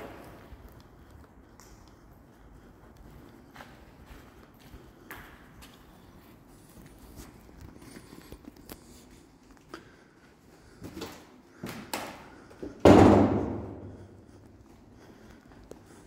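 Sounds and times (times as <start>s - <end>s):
footsteps on concrete floor: 0.0s - 16.0s
loud echoing bang: 12.8s - 14.0s.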